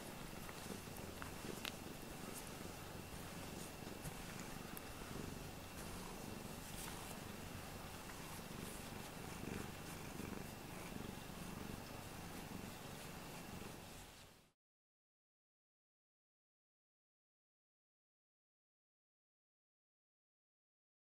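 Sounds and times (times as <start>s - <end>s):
cat purring: 0.0s - 14.5s.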